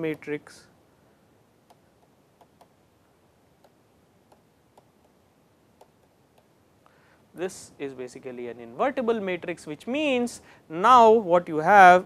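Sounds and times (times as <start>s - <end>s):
room hiss: 0.0s - 12.0s
stylus tapping on pen tablet: 1.6s - 2.8s, 3.6s - 5.2s, 5.8s - 6.6s.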